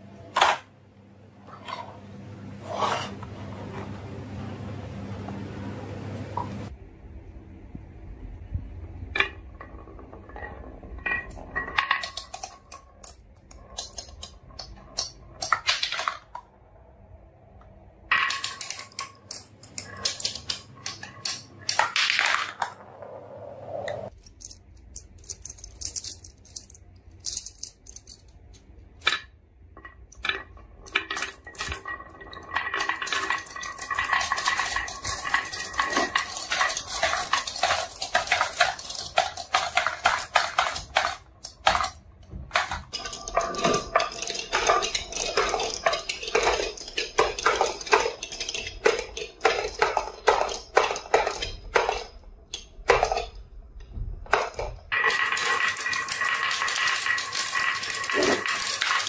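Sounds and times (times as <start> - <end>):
marbles clacking on wooden tracks: 9.1 - 16.5, 18.1 - 23.1, 29.0 - 53.4, 54.2 - 59.0.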